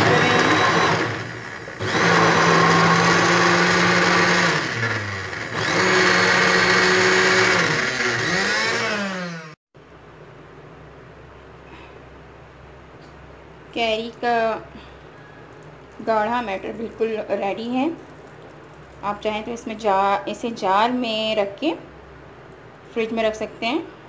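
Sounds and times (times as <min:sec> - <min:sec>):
mixer grinder motor grinding: 0:00.0 - 0:09.6.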